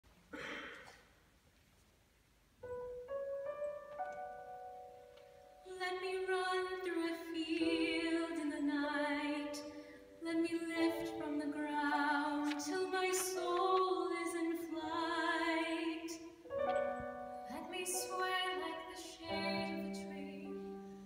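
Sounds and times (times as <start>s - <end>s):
women singing a duet: 5.7s - 16.3s, 17.5s - 20.7s.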